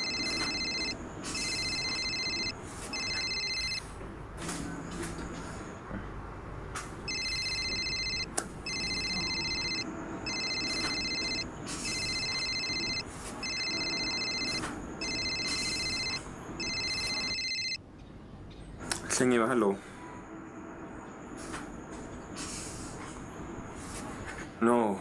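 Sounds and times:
phone ringing electronic trill: 0:00.0 - 0:03.8, 0:07.1 - 0:17.8.

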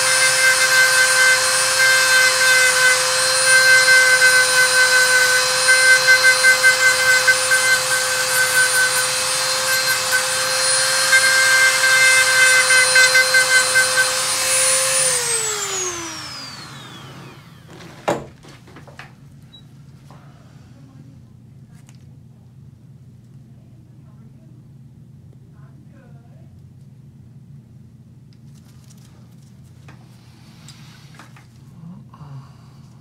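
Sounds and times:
nail drill whirring: 0:00.0 - 0:17.8.

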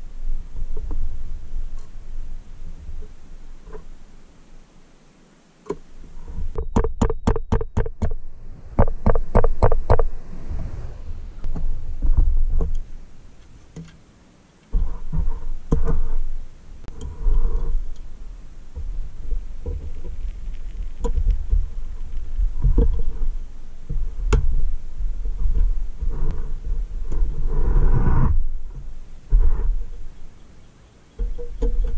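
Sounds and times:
sharp metallic taps: 0:06.6 - 0:08.2, 0:08.8 - 0:10.1.

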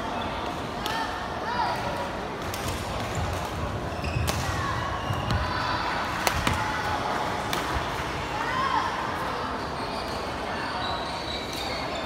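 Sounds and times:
background murmur: 0:00.0 - 0:12.0
sneakers squeaking on floor: 0:03.1 - 0:05.6, 0:09.6 - 0:12.0
racket hitting shuttlecock: 0:06.1 - 0:06.6.

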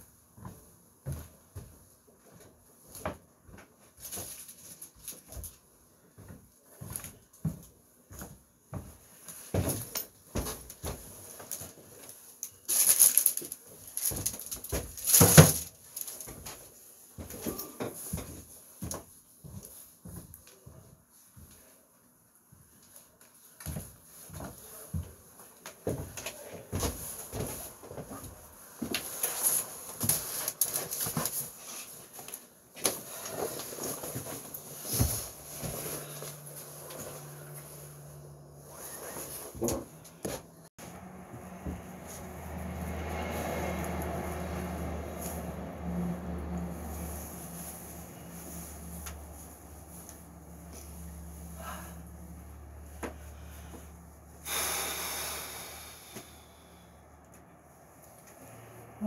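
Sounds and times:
plastic bag crinkling: 0:12.7 - 0:15.2
footsteps: 0:23.7 - 0:44.2.

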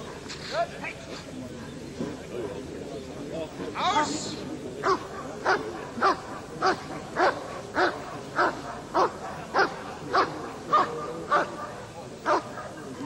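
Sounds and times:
dog barking: 0:04.8 - 0:11.6.

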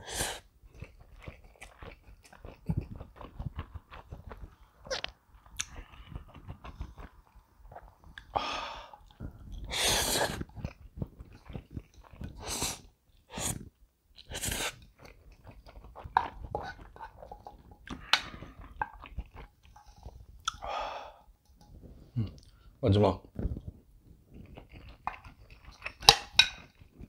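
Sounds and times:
wet chewing: 0:00.6 - 0:20.8, 0:23.4 - 0:27.0
noodle slurping: 0:08.2 - 0:20.7
mouth clicks: 0:20.4 - 0:20.7.

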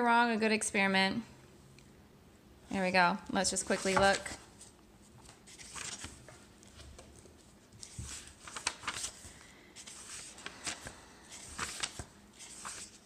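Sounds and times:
book pages turning: 0:03.5 - 0:13.0.

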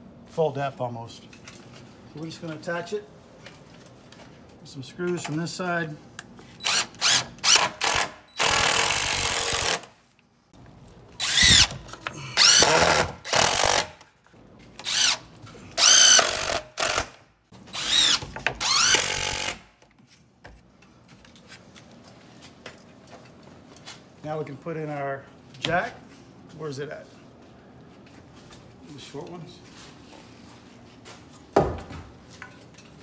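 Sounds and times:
impact driver driving screws: 0:06.6 - 0:09.9, 0:11.2 - 0:14.0, 0:15.8 - 0:19.7.

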